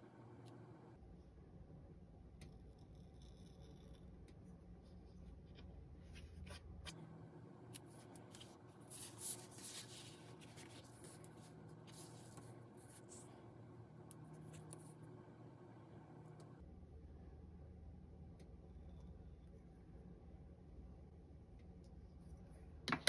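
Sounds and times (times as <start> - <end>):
paper rustling: 7.8 - 13.3.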